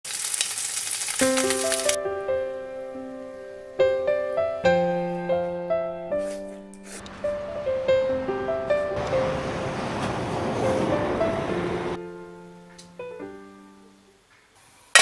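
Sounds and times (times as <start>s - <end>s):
bacon sizzling in frying pan: 0.0s - 2.0s
gentle keyboard melody: 1.2s - 14.2s.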